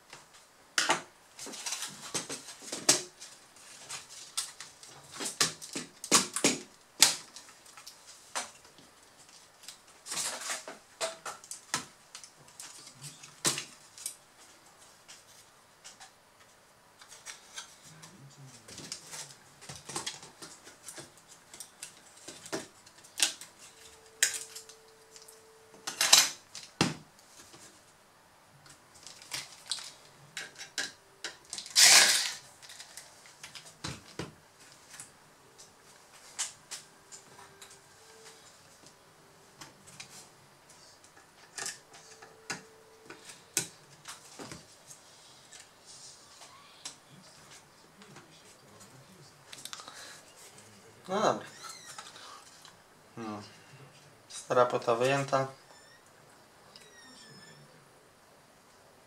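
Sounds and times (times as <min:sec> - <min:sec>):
laptop parts clattering: 0:18.7 - 0:26.9, 0:29.0 - 0:34.2.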